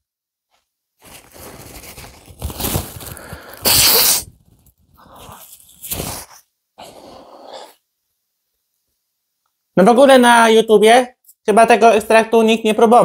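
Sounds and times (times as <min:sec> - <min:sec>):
man blowing his nose: 0:03.2 - 0:04.4, 0:05.9 - 0:06.4.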